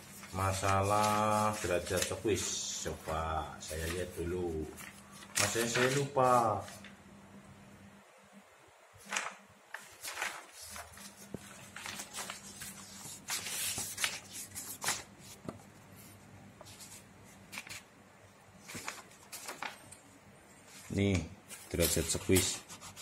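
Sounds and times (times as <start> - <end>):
book pages being leafed through: 0.0 - 6.9, 9.0 - 15.6, 16.6 - 17.9, 18.6 - 19.8, 20.8 - 23.0.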